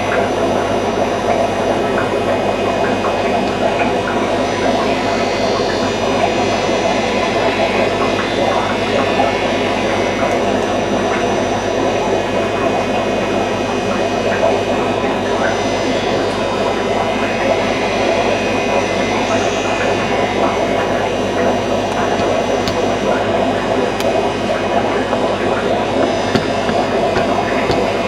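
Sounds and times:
aquarium equipment whirring: 0.0s - 28.0s
electrical hum: 19.5s - 28.0s.

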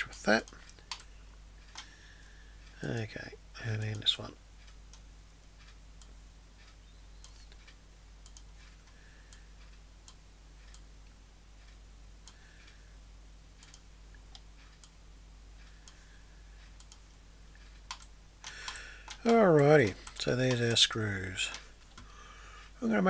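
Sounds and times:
computer mouse clicking: 0.0s - 1.9s, 5.6s - 10.9s, 13.6s - 15.0s, 16.8s - 20.8s, 21.5s - 22.1s
low steady hum: 0.0s - 23.0s.

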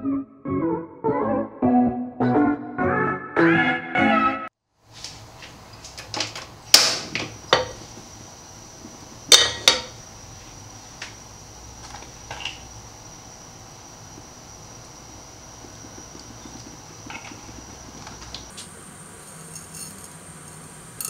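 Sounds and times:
faint high whine: 7.2s - 21.0s
pan clinking on metal grate: 19.4s - 20.2s.

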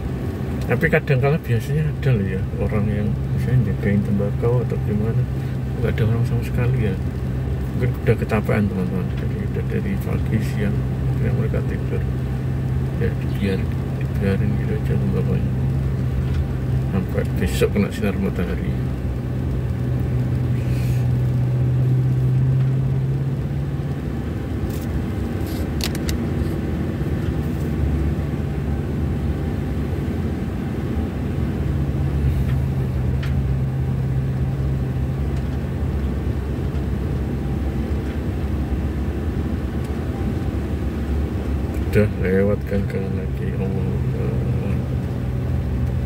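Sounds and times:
low engine hum: 0.0s - 46.0s
road rumble: 0.0s - 46.0s.

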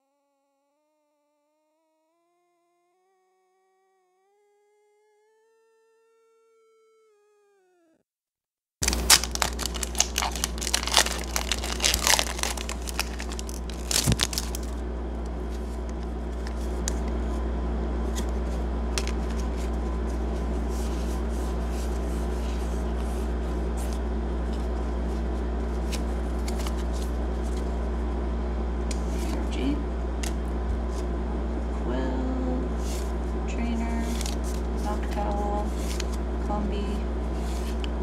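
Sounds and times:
foil pack tearing and crinkling: 8.8s - 14.8s
steady low hum: 8.8s - 38.0s.

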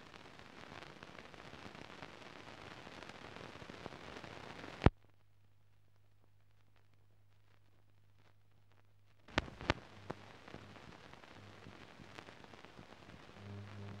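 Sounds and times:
crackle and hiss: 0.0s - 14.0s
film pops: 8.7s - 14.0s
low hum: 9.8s - 12.2s, 13.1s - 14.0s.

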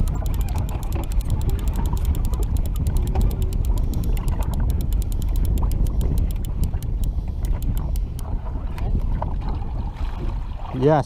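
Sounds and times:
fishing reel clicking: 0.0s - 8.2s
wind and water rumble: 0.0s - 11.0s.

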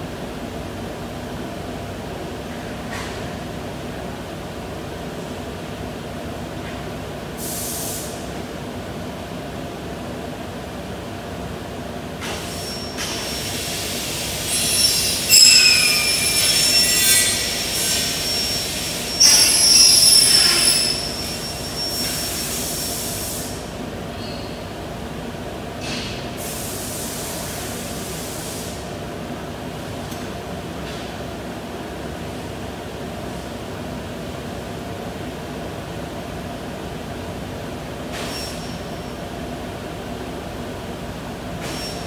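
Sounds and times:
glass cutter screeching on glass: 14.5s - 22.3s.

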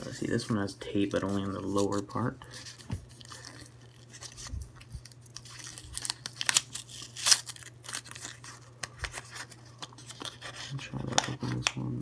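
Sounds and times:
paper crinkling: 0.0s - 11.7s
tape peeling off paper: 3.1s - 10.4s.

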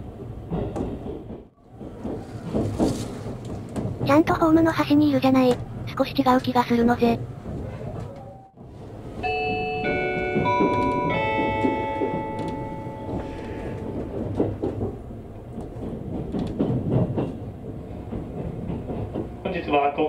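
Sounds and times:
electric train running: 8.6s - 20.0s
four-note chime: 9.2s - 13.8s.

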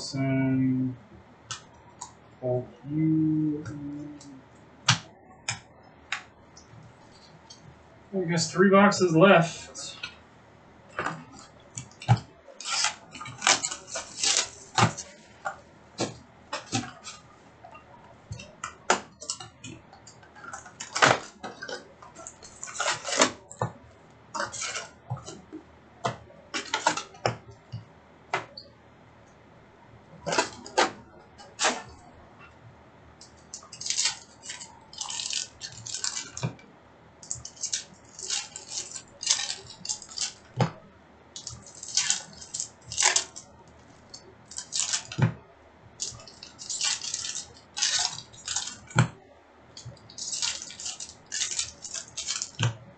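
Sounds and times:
wrappers crinkling and rustling: 33.4s - 36.4s, 37.3s - 40.6s, 41.3s - 45.2s, 46.0s - 49.0s, 49.7s - 52.8s.

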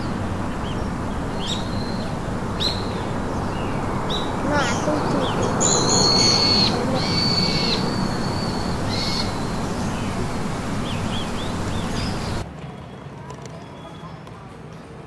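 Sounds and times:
bird chirps: 0.0s - 13.0s
outdoor ambience hiss: 0.0s - 15.0s
bird whistling: 0.6s - 12.4s.

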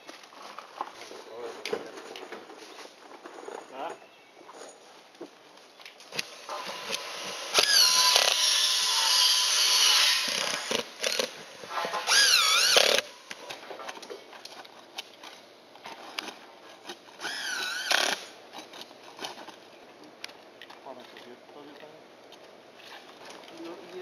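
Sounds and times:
power drill driving screws: 6.1s - 11.3s, 11.9s - 13.1s, 17.2s - 18.3s.

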